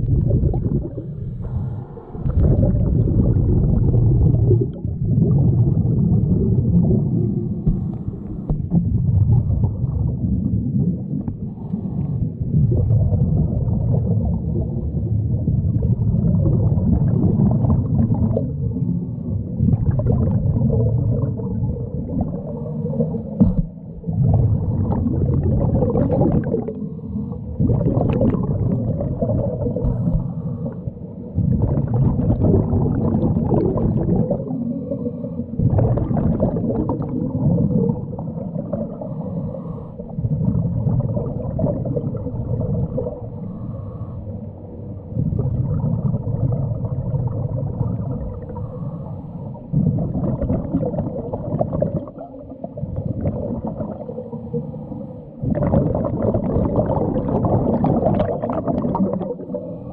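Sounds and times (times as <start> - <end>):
exhaled bubbles: 0.0 - 59.9
underwater regulator breathing: 0.8 - 2.7, 7.3 - 8.8, 11.3 - 12.6, 22.2 - 23.8, 26.2 - 28.8, 29.5 - 31.6, 34.0 - 36.4, 38.7 - 40.5, 43.1 - 45.3, 48.3 - 51.0, 53.9 - 56.1, 57.9 - 59.9.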